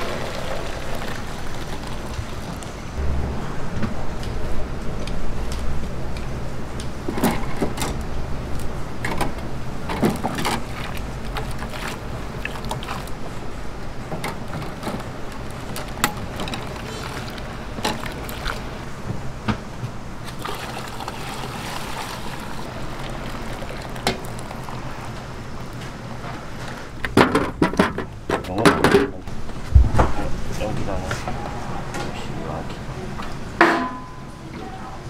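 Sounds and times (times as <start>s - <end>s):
broth bubbling: 0.0s - 3.0s, 10.6s - 13.5s, 15.2s - 19.1s, 20.2s - 25.8s
steady low hum: 0.6s - 35.0s.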